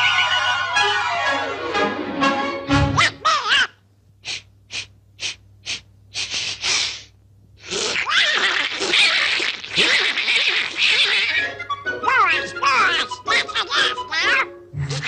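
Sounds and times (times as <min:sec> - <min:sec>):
cartoon bear sniffing: 0:04.2 - 0:08.1.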